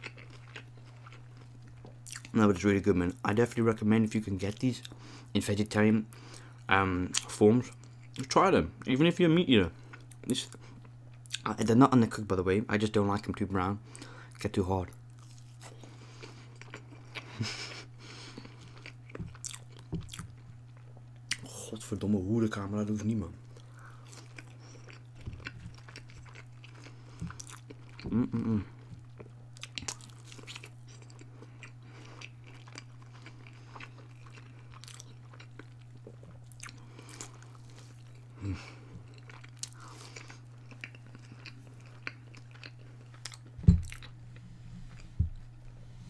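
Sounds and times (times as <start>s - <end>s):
chewing and crunching: 0.0s - 2.4s, 9.7s - 11.5s, 13.9s - 21.5s, 23.0s - 44.2s
steady low hum: 0.0s - 46.0s
voiced hum: 21.3s - 32.4s, 36.0s - 46.0s
low thump: 43.6s - 43.9s.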